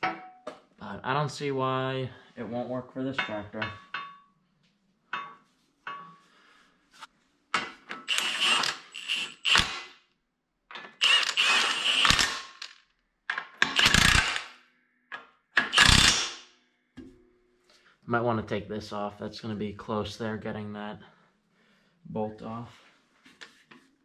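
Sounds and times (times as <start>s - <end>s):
impact wrench hammering bolts: 7.6s - 9.9s, 10.7s - 16.4s.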